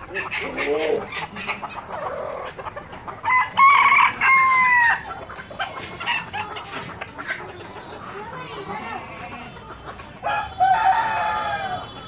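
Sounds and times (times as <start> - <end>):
chickens clucking: 0.0 - 12.0
rooster crowing: 3.2 - 5.0, 10.2 - 12.0.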